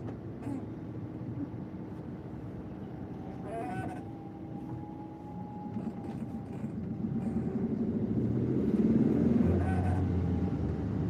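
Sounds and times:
road noise inside car: 0.0 - 11.0
car engine: 4.5 - 11.0.

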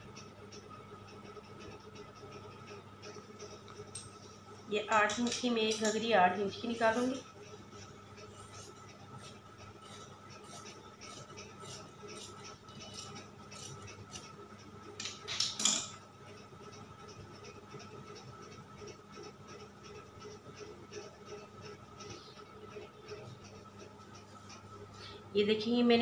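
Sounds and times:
scissors cutting cloth: 8.4 - 14.4.

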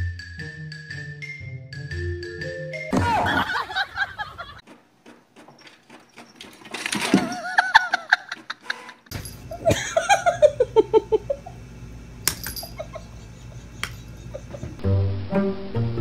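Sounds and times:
person laughing: 2.9 - 4.6, 7.1 - 11.6, 12.6 - 14.8
low hum: 9.1 - 16.0.

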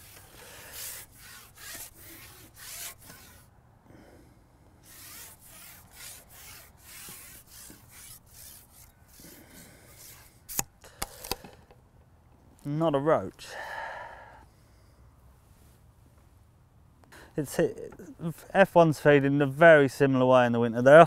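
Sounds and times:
fishing pole rubbing through hands: 0.0 - 3.5, 4.8 - 10.7.

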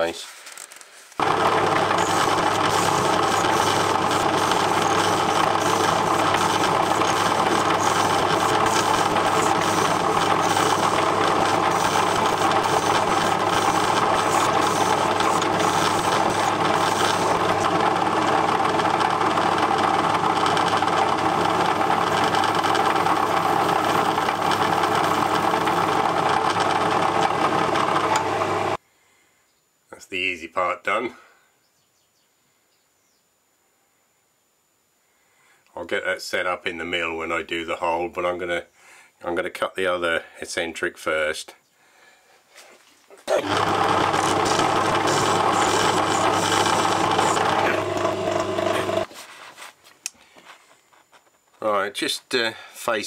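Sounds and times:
metal lathe whirring and rattling: 1.2 - 28.8, 43.4 - 49.1.

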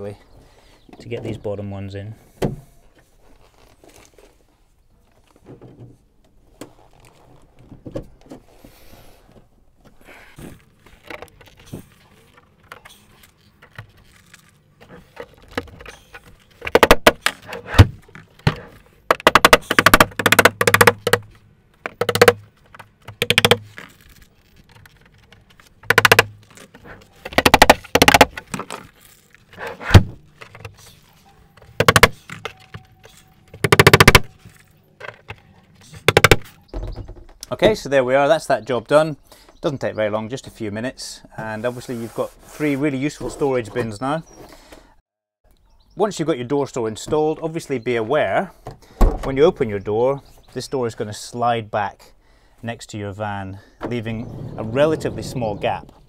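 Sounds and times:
rapid sharp taps on plastic: 19.1 - 21.2, 21.8 - 22.4, 23.0 - 23.6, 25.9 - 26.3, 27.3 - 28.4, 31.8 - 32.2, 33.6 - 34.3, 36.1 - 36.4.

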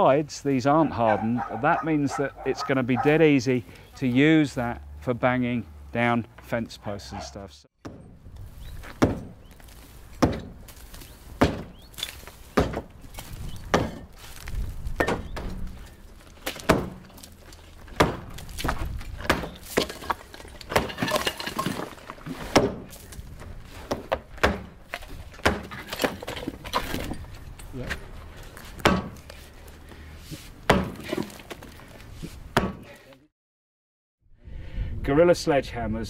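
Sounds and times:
sledgehammer striking a stone wall: 7.8 - 8.2, 8.9 - 9.4, 10.2 - 10.6, 11.4 - 14.1, 14.9 - 27.2, 28.8 - 29.2, 30.7 - 31.4, 32.6 - 32.9
rubble falling: 8.8 - 27.7.

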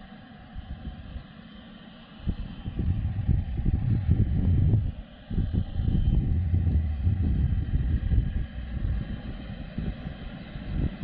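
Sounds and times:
faint jet engine: 0.0 - 11.0
wind buffeting microphone: 2.2 - 11.0.

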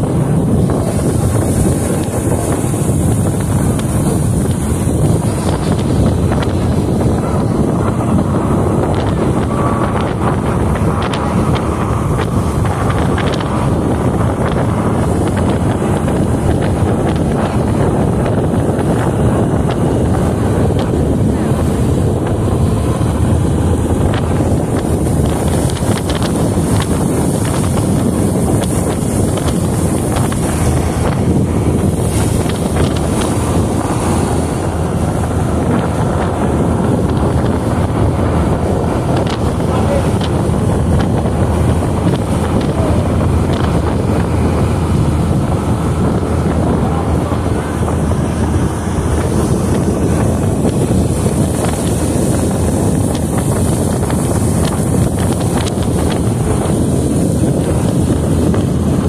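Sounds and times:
churning boat wake: 0.0 - 59.0
motorboat rumble: 0.0 - 59.0
water splashing along hull: 0.0 - 59.0
wind buffeting microphone: 0.0 - 59.0.

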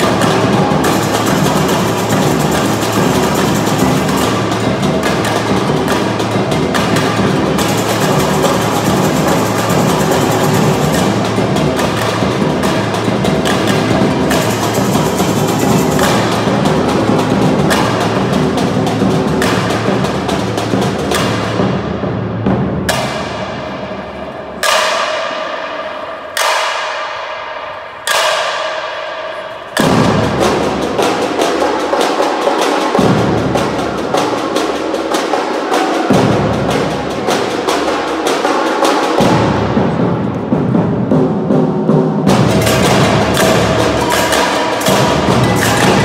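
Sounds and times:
snare and hand drums: 0.0 - 23.9, 24.6 - 25.7, 26.4 - 29.0, 29.8 - 46.0
samba drumming: 0.0 - 25.5, 29.8 - 46.0
bass drums: 42.3 - 46.0.

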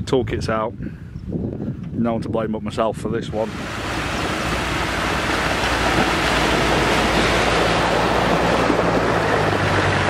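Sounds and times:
engine low hum: 3.5 - 10.0
water splashing: 3.5 - 10.0.

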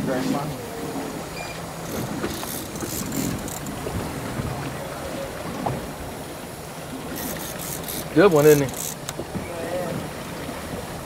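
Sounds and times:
water splashing against boat: 0.0 - 11.0
wind noise on microphone: 1.4 - 6.2.

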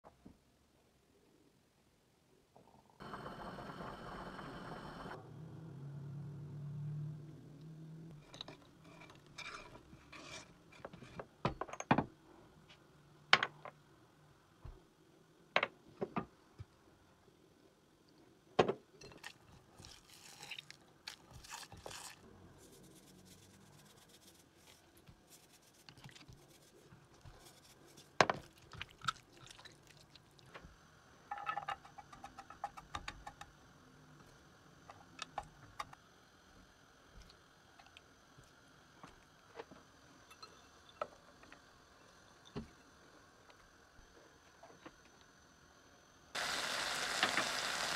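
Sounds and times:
food scraping and squishing in bowl: 8.6 - 11.1.

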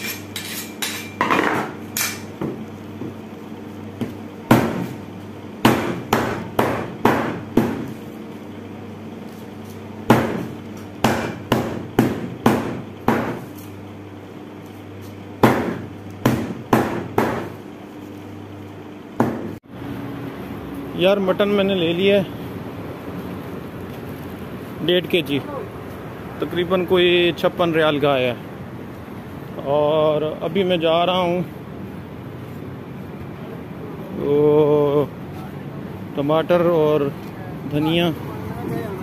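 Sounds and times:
cleaver chopping on cutting board: 10.1 - 13.5, 15.4 - 17.5.

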